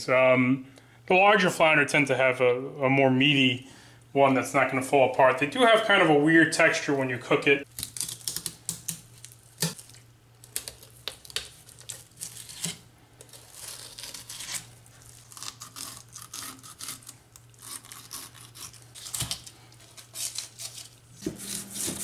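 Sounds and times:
knife scraping fish scales: 11.9 - 22.0.

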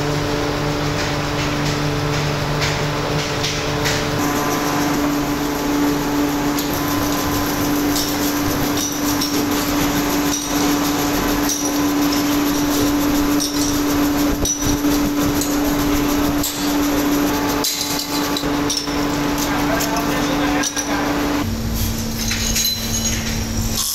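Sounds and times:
steady machine hum: 0.0 - 23.9
metal parts clinking into steel tub: 17.6 - 21.0, 22.2 - 23.9.

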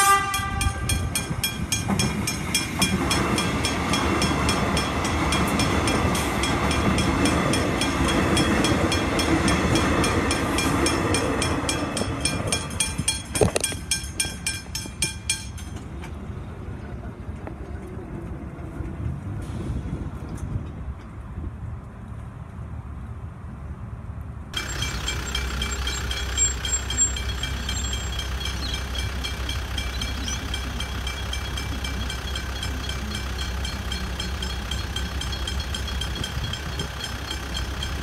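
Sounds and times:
electric train rumbling past: 0.0 - 23.6, 24.6 - 38.0
traffic noise: 0.0 - 38.0
level crossing bells ringing: 24.6 - 38.0.

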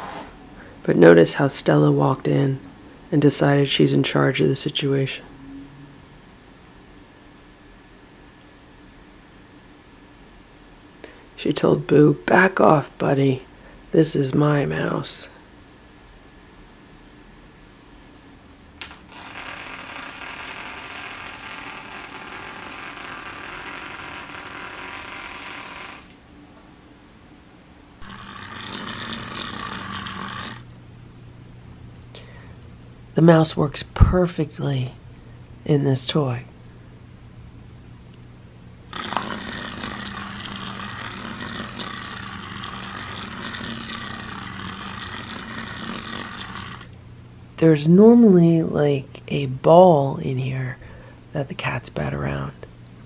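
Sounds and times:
small toy motor whirring: 18.9 - 26.2, 28.0 - 30.7, 38.9 - 46.9.

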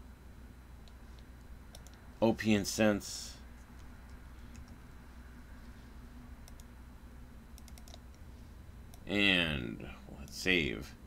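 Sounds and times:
low steady hum: 0.0 - 11.0
mouse clicks: 0.8 - 2.0, 3.8 - 4.8, 6.4 - 6.7, 7.6 - 8.2
keyboard keystrokes: 7.6 - 8.0.

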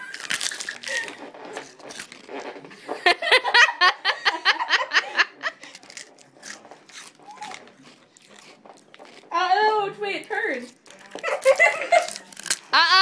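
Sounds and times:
girl giggling: 12.7 - 13.0.

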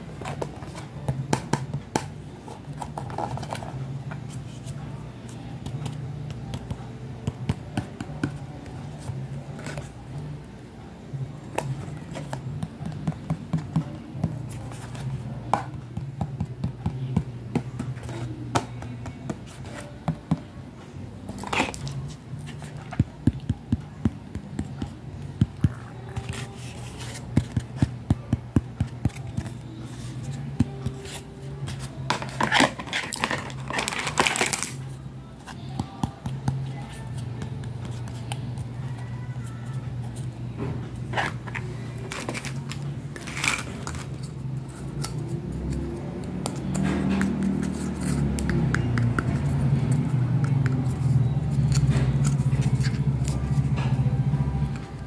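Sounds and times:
rustling and scraping: 29.1 - 34.9, 39.0 - 45.4.

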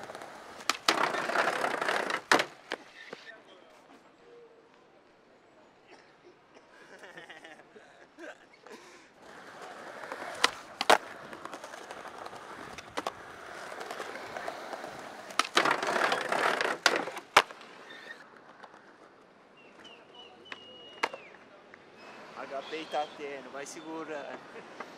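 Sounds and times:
skateboard clacking: 0.0 - 2.9, 9.2 - 17.8
skateboard wheels rolling on concrete: 0.0 - 5.2, 8.7 - 24.9.

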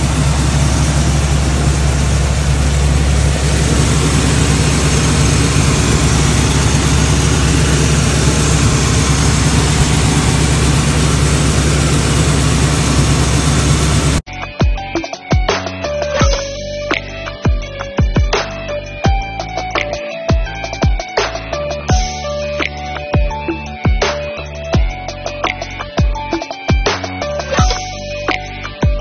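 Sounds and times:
car engine idling: 0.0 - 14.2.

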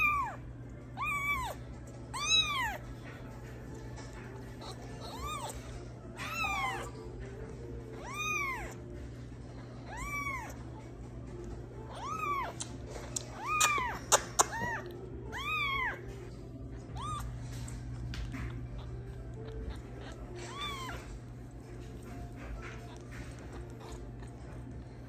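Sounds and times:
kitten mewing: 0.0 - 0.4, 1.0 - 2.9, 4.4 - 7.1, 7.9 - 8.9, 9.8 - 10.7, 11.8 - 17.6, 18.3 - 21.5, 22.2 - 24.8.

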